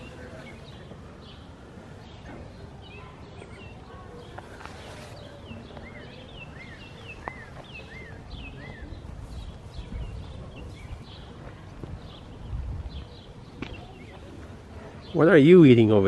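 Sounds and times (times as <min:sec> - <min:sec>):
small birds chirping: 0:00.0 - 0:16.0
wind rumble on microphone: 0:08.2 - 0:13.9.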